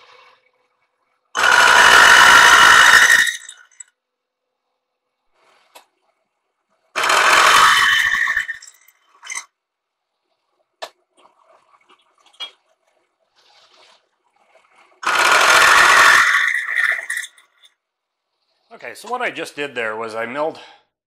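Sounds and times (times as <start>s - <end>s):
milling machine cutting steel: 1.4s - 3.8s, 7.0s - 9.4s, 15.0s - 17.3s.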